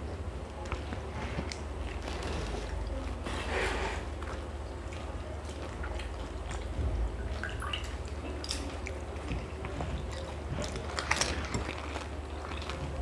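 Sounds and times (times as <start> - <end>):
steady low hum: 0.0 - 13.0
small water splashes and drips: 4.2 - 13.0.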